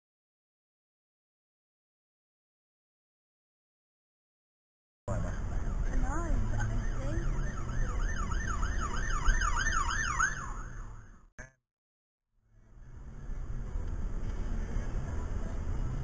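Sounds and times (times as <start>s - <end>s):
low road rumble: 5.1s - 11.5s, 12.4s - 16.0s
ambulance siren wailing and yelping: 5.2s - 11.3s.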